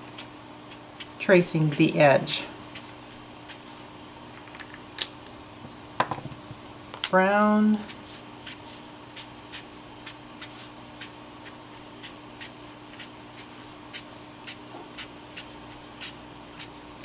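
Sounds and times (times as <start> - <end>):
brush marker scratching on card: 2.7 - 3.8, 7.9 - 16.8.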